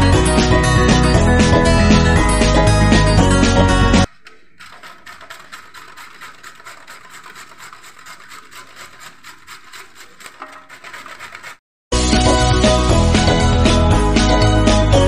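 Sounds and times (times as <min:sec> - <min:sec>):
carrots grated on metal grater: 0:04.1 - 0:11.6.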